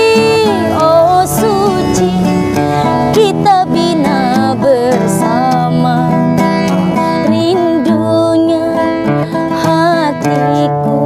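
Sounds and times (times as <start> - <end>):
acoustic guitar: 0.0 - 11.0
woman singing a ballad: 0.0 - 11.0.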